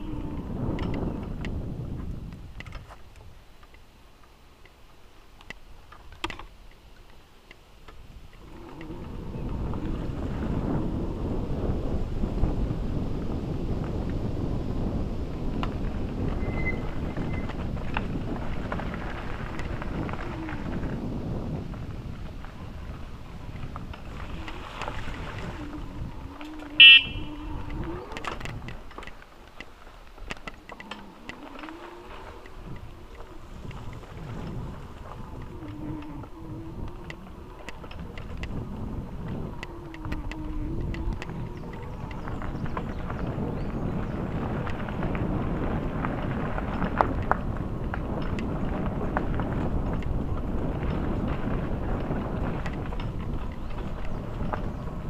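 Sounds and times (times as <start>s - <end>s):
wind noise on microphone: 0.0s - 3.9s, 5.4s - 55.0s
light clicks and ticks: 2.3s - 9.0s, 27.5s - 42.9s
faint low rumble: 7.8s - 55.0s
loud horn-like beep: 26.8s - 27.5s.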